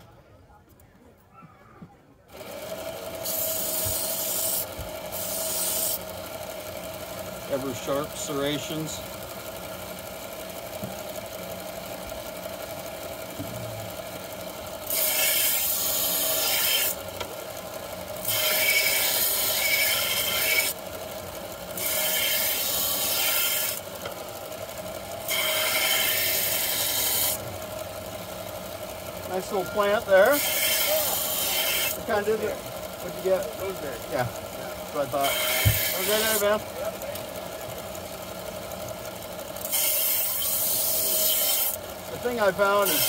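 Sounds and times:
belt grinder motor running: 0:02.3 - 0:43.0
knife blade grinding on belt: 0:03.2 - 0:06.0, 0:14.9 - 0:17.0, 0:18.2 - 0:20.7, 0:21.8 - 0:23.8, 0:30.2 - 0:32.0, 0:35.2 - 0:36.5, 0:39.6 - 0:41.8.

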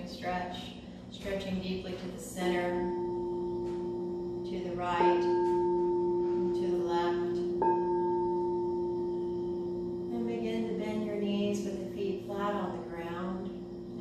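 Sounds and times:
singing bowl ringing: 0:01.2 - 0:14.0
mallet striking singing bowl: 0:02.7 - 0:10.1.

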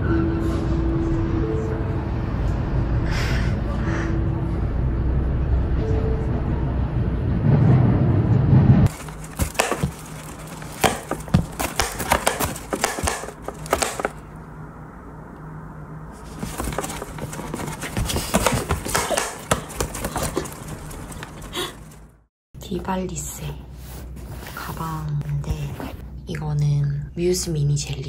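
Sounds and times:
low rumble: 0:00.0 - 0:08.9
cat scratching and tapping: 0:08.9 - 0:14.2, 0:16.4 - 0:21.9.

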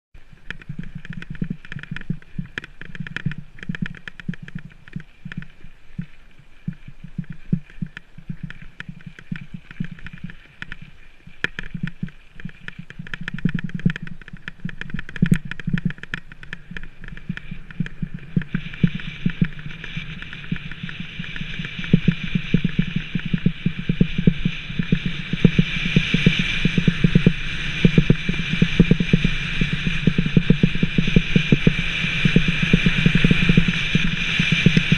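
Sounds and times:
bike rattling over gravel: 0:00.2 - 0:34.9
steady hiss: 0:00.2 - 0:34.9.

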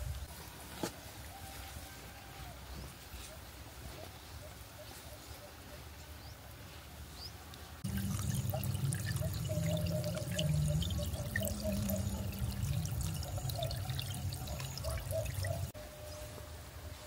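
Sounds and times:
water pouring with splashing rush: 0:07.8 - 0:15.8.

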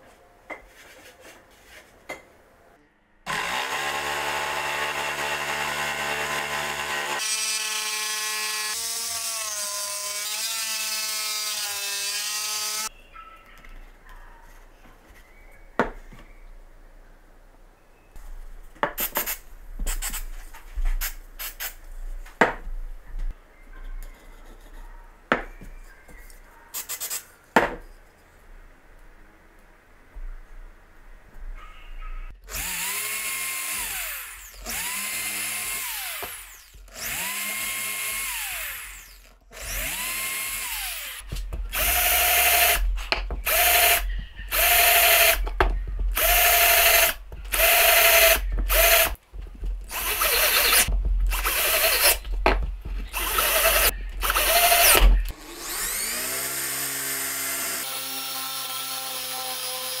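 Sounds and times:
cordless drill whining: 0:03.3 - 0:09.7, 0:32.5 - 0:42.8, 0:43.4 - 0:45.4, 0:46.1 - 0:49.2, 0:49.9 - 0:52.2, 0:53.1 - 1:00.0
electric drill boring into wood: 0:03.3 - 0:12.9, 0:32.5 - 0:42.8, 0:43.4 - 0:45.4, 0:46.1 - 0:49.2, 0:49.9 - 0:52.2, 0:53.1 - 1:00.0.

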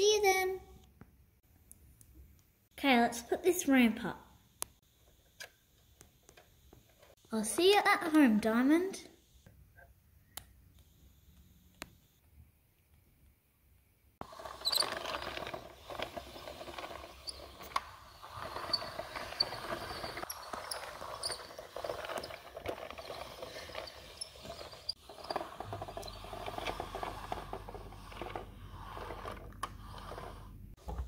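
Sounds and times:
toy truck rolling on hard floor: 0:14.2 - 0:30.7.

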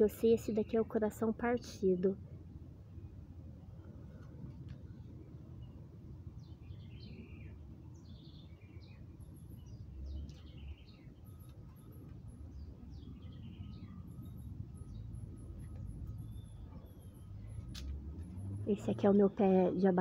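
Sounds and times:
low steady background rumble: 0:00.0 - 0:20.0
small birds chirping: 0:04.8 - 0:20.0.

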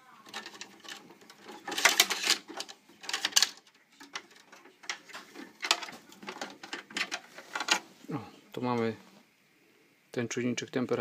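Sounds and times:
hands clicking and scraping metal parts: 0:00.2 - 0:07.9.

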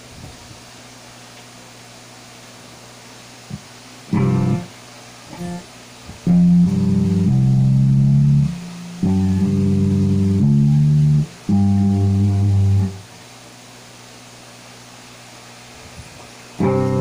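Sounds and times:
distorted electric guitar: 0:04.1 - 0:04.7, 0:05.3 - 0:13.1, 0:16.6 - 0:17.0.

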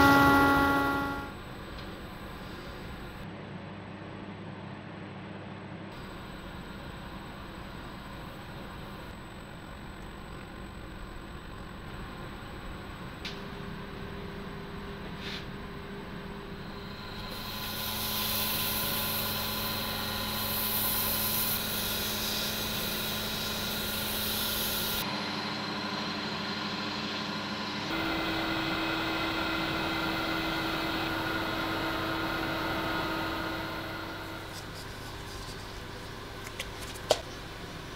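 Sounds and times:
wood lathe humming with high whine: 0:00.0 - 0:01.4, 0:15.7 - 0:36.0
hand sanding spinning mug: 0:34.4 - 0:36.2.

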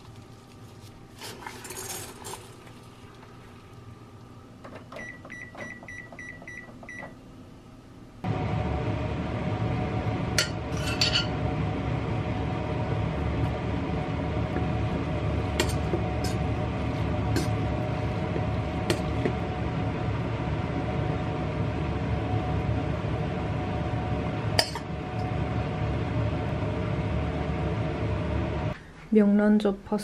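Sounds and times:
steady kitchen hum: 0:00.0 - 0:30.0
kitchenware clinking: 0:10.4 - 0:11.4.

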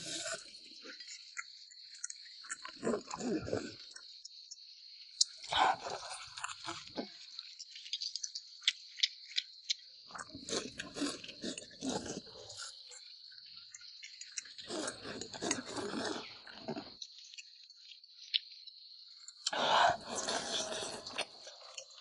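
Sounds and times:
people chewing and eating: 0:00.0 - 0:04.3, 0:05.2 - 0:18.5, 0:19.2 - 0:22.0.

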